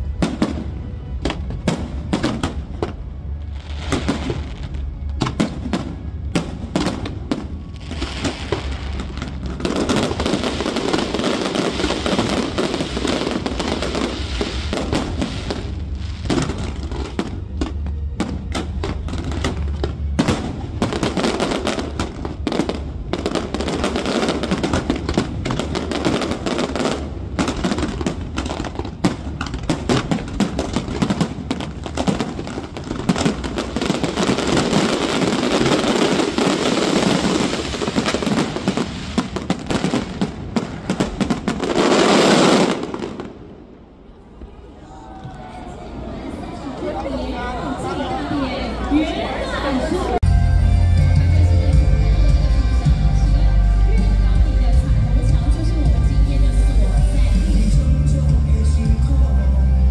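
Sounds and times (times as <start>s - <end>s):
fireworks bangs and crackling: 0.0s - 44.5s.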